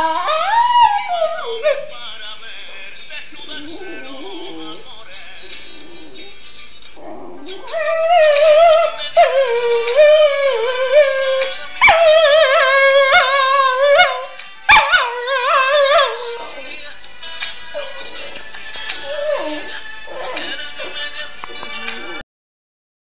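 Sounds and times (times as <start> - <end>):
dog howling: 0.0 - 1.9, 3.5 - 4.8, 7.0 - 16.8, 17.8 - 18.4, 19.0 - 22.2
music: 0.0 - 22.2.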